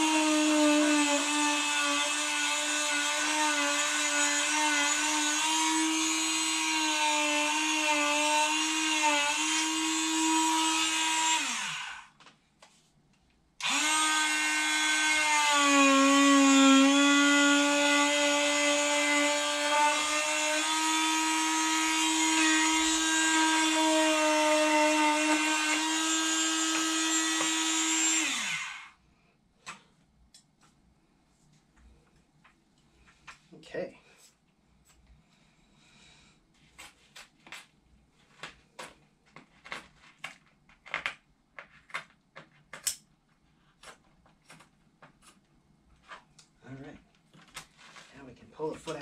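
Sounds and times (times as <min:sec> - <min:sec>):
electric power tool motor whining: 0:00.0 - 0:12.1, 0:13.6 - 0:29.0.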